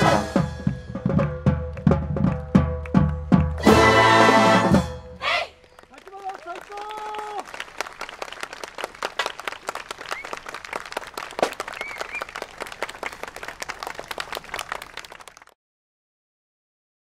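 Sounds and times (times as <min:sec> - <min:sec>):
brass band chord: 0:00.0 - 0:01.2, 0:03.6 - 0:05.2
audience applauding: 0:05.2 - 0:15.6.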